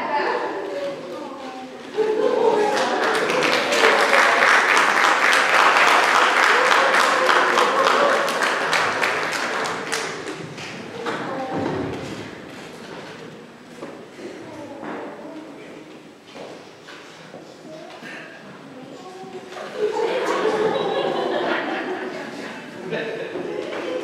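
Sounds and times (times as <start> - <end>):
voices: 0.0 - 10.1, 17.5 - 24.0
audience applauding: 2.5 - 11.0.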